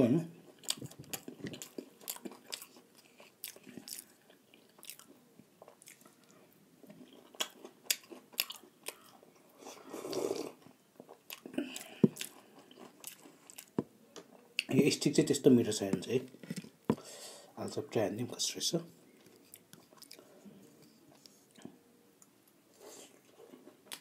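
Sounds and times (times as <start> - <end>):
chewing with mouth smacks: 0.6 - 9.2, 11.0 - 13.8, 19.2 - 20.2
slurping sip: 9.7 - 10.6.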